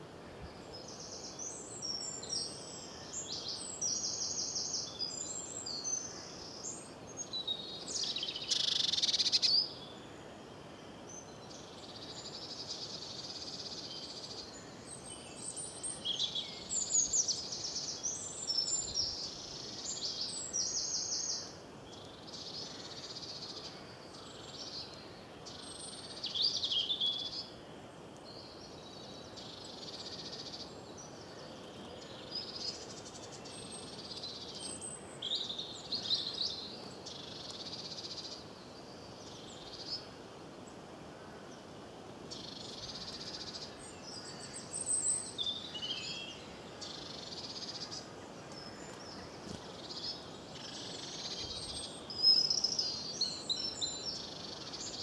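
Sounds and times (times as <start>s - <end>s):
faint steady hiss: 0.0s - 55.0s
songbirds singing: 0.0s - 55.0s.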